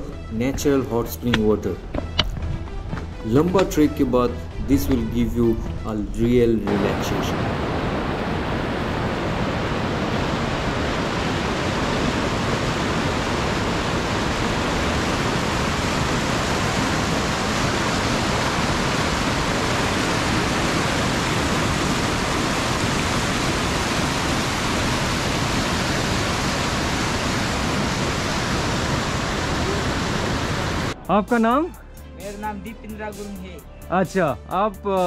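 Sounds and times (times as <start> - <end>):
river water rushing: 6.7 - 31.0.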